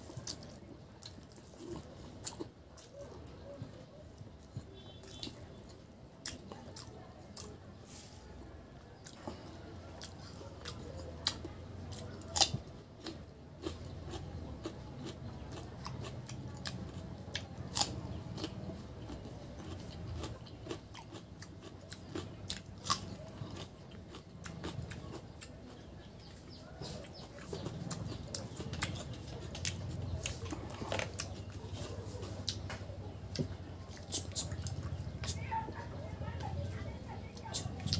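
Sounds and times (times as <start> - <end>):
man chewing and smacking: 0.0 - 7.8, 8.9 - 37.9.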